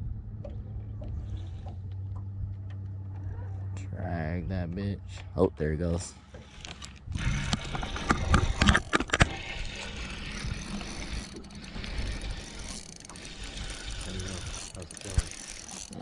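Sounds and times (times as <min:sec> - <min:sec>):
fishing reel gears whirring: 0:06.2 - 0:16.0.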